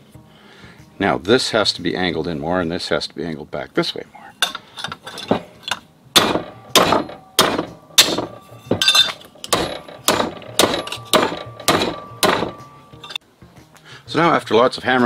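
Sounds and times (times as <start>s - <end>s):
short metallic ring: 4.4s - 13.2s
hammer blows on metal bar: 6.2s - 13.2s.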